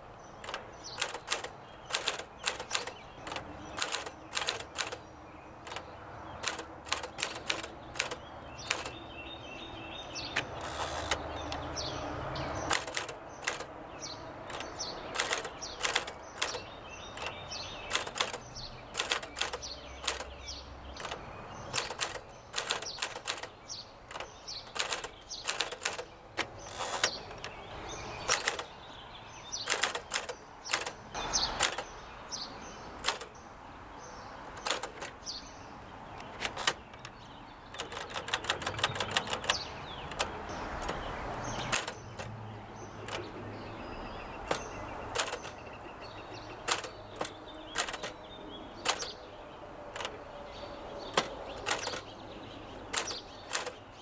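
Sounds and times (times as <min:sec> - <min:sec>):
manual typewriter typing: 0:00.4 - 0:05.0, 0:05.6 - 0:09.0, 0:10.4 - 0:11.6, 0:12.6 - 0:13.8, 0:14.5 - 0:20.4, 0:21.0 - 0:27.6, 0:28.2 - 0:28.8, 0:29.6 - 0:31.9, 0:33.0 - 0:33.3, 0:34.5 - 0:35.2, 0:36.2 - 0:42.4, 0:43.0 - 0:43.3, 0:44.5 - 0:45.6, 0:46.6 - 0:48.2, 0:48.8 - 0:49.2, 0:49.9 - 0:50.2, 0:51.1 - 0:52.2, 0:52.9 - 0:53.9.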